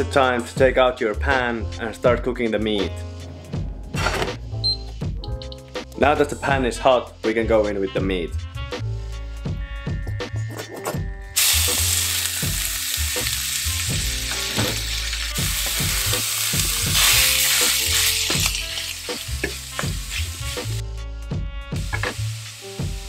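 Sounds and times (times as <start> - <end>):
meat sizzling in a pan: 11.4 - 20.8, 21.8 - 23.0.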